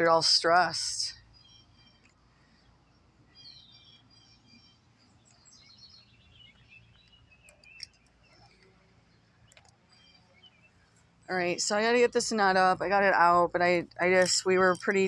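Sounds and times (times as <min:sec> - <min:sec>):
faint high bird chirps: 0:01.0 - 0:12.4.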